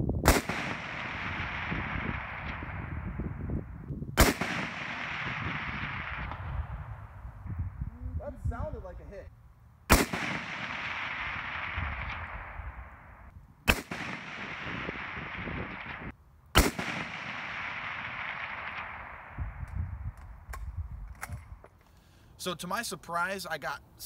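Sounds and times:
rifle shots echoing: 0:00.2 - 0:03.6, 0:04.2 - 0:07.2, 0:09.9 - 0:19.6.

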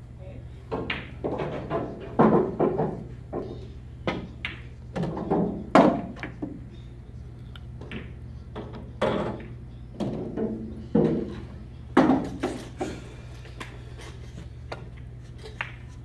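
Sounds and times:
pool balls clacking: 0:00.7 - 0:06.7, 0:07.7 - 0:16.0.

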